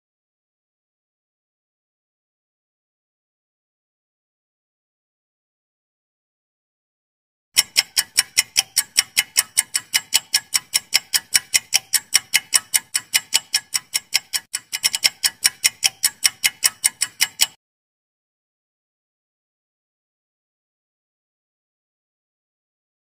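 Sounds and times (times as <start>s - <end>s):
clock ticking fast: 7.6s - 17.6s.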